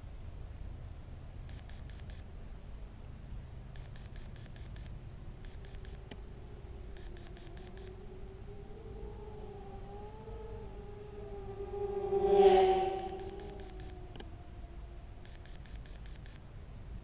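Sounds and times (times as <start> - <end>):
faint wavering siren-like tone: 5.2 - 16.4
electronic buzzer high beeps: 12.8 - 13.9.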